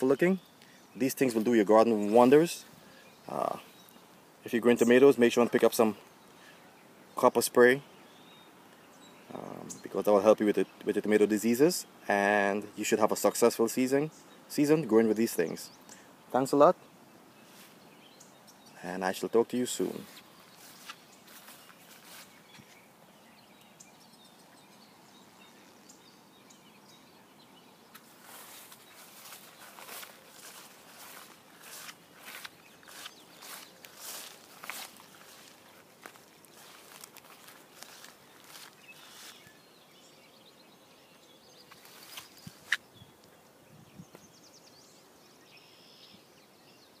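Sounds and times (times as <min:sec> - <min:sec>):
faint outdoor hiss: 0:00.0 - 0:47.0
faint bird chirps: 0:13.8 - 0:47.0
footsteps through grass: 0:17.4 - 0:18.1, 0:19.1 - 0:24.0, 0:27.8 - 0:39.7, 0:41.6 - 0:42.9.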